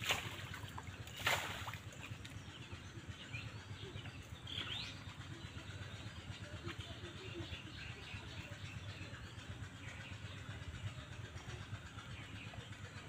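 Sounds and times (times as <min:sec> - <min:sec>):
splash of muddy water: 0:00.0 - 0:02.1.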